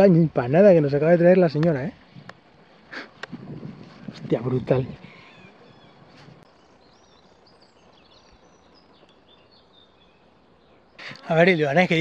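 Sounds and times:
faint outdoor background noise: 0.0s - 12.0s
small bird chirping: 4.2s - 12.0s.

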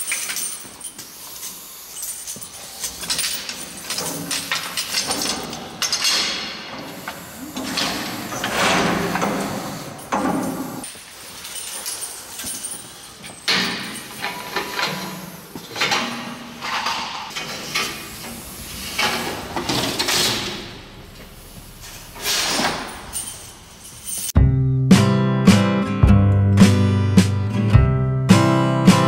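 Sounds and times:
acoustic guitar music: 24.4s - 29.0s.

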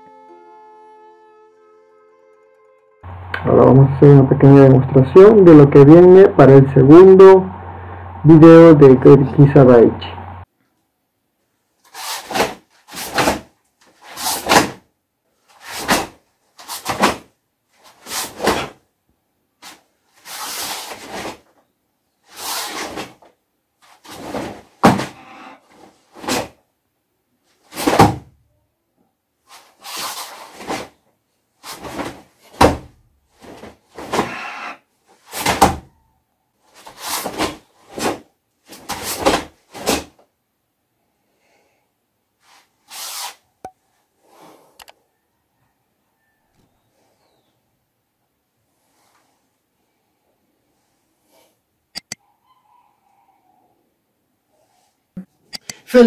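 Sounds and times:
sharp forceful breaths: 33.4s - 35.6s.

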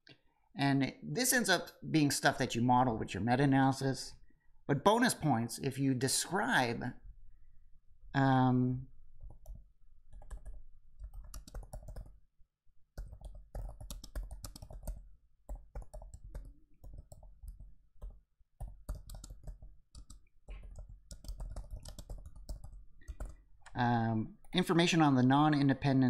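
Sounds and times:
laptop keyboard typing: 9.2s - 12.2s, 13.0s - 23.8s.

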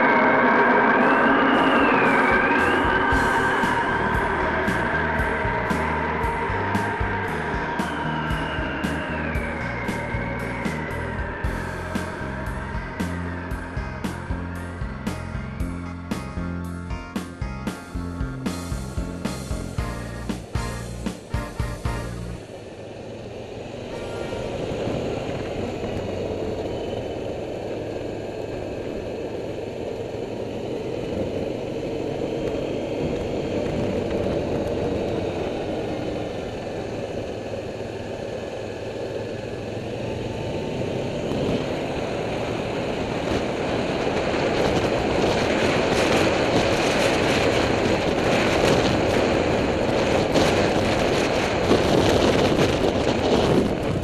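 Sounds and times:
quad bike engine running: 0.0s - 54.0s
road and wind noise: 0.0s - 54.0s.

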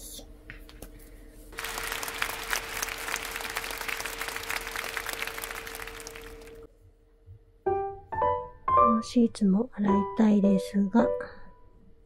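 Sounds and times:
crowd clapping: 1.6s - 6.7s.

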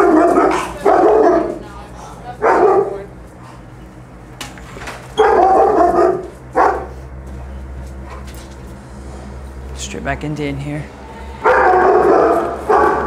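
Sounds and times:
dog barking: 0.0s - 1.6s, 2.4s - 3.1s, 5.2s - 7.0s, 11.4s - 13.0s.

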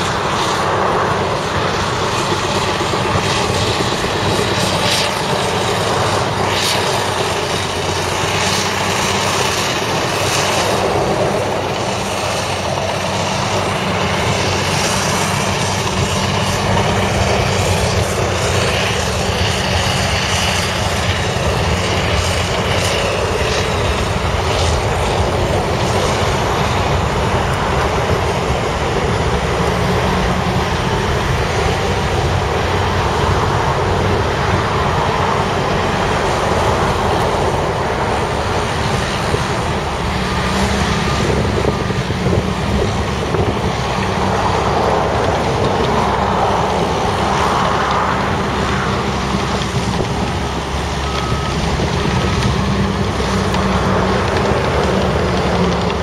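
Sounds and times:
heavy diesel engines droning: 0.0s - 56.0s.

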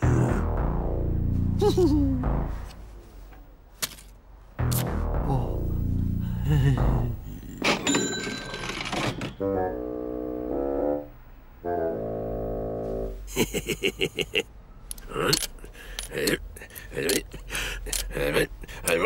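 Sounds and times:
coins clinking on wooden counter: 7.6s - 9.4s
brass notes of cartoon music: 9.4s - 13.3s.

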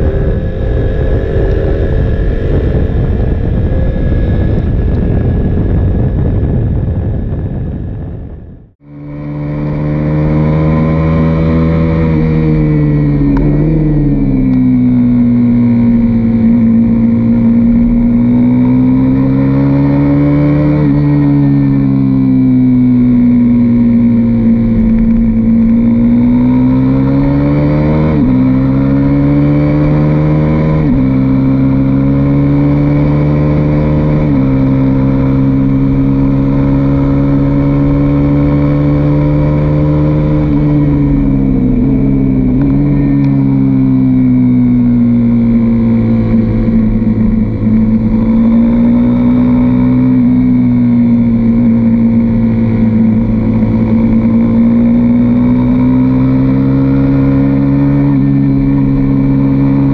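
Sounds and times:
wind rushing: 0.0s - 20.0s
motorcycle engine revving: 0.0s - 59.9s.

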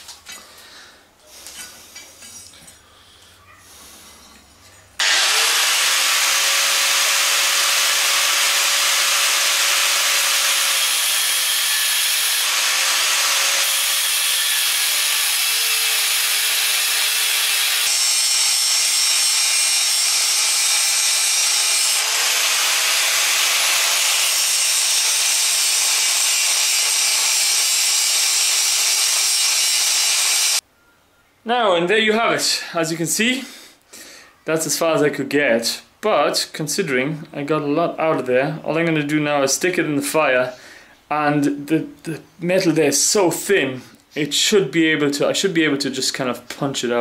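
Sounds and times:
angle grinder cutting steel: 5.0s - 30.6s.

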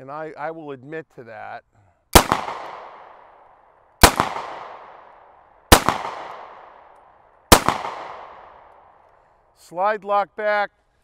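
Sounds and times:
pistol shots with echo: 2.1s - 9.0s.

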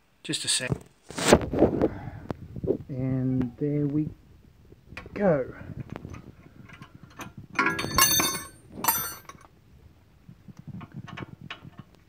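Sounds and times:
steel tools clinking: 7.1s - 9.4s.

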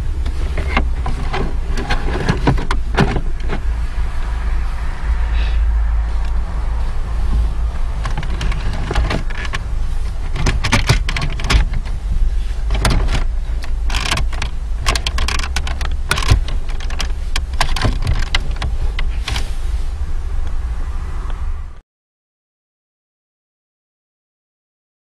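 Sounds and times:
steady low rumble: 0.0s - 21.8s
plastic and metal clicks and scrapes: 0.2s - 3.7s, 8.0s - 12.0s, 12.6s - 19.5s.

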